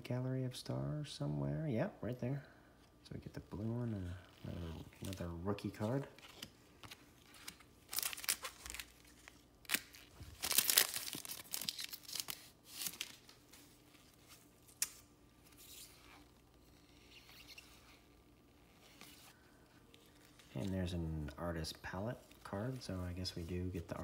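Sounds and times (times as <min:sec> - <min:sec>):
cards rustling: 0:03.5 - 0:16.3
card pack wrapper tearing: 0:04.9 - 0:13.4.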